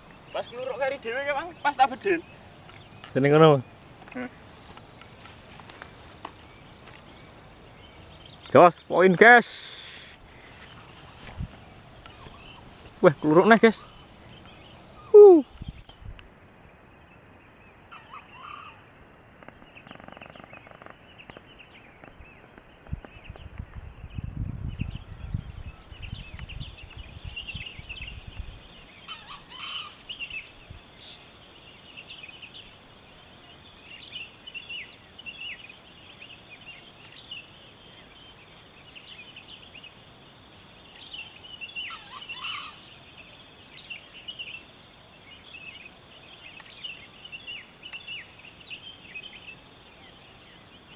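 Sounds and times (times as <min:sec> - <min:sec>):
small birds chirping: 0:00.0 - 0:50.9
wind rumble on microphone: 0:11.0 - 0:12.7, 0:15.4 - 0:16.3, 0:19.4 - 0:28.9.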